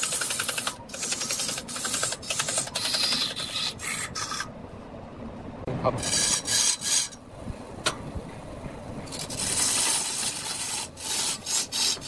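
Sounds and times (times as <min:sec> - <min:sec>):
rag rubbing spinning wood: 0:00.0 - 0:04.5, 0:09.0 - 0:12.0.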